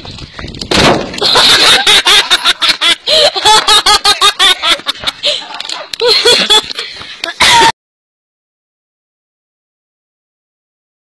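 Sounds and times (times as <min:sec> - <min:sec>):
person laughing heartily: 0:01.2 - 0:07.7.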